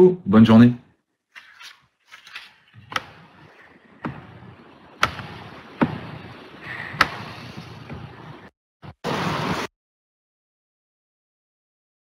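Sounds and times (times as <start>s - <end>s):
low rumbling room noise: 2.6s - 8.5s
sharp knocks and clicks: 2.9s - 6.4s, 7.0s - 8.2s.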